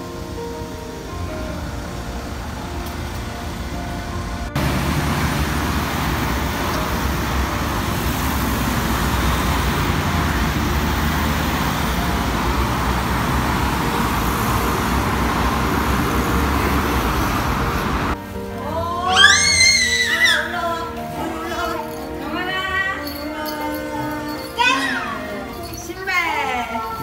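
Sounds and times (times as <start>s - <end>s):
cars driving past: 0.0s - 18.8s.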